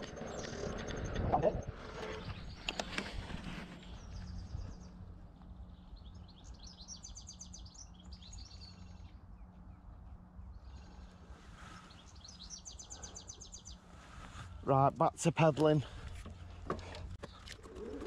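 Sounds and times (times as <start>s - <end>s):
low steady hum: 0.0s - 18.0s
songbirds singing trilled notes: 3.8s - 13.9s.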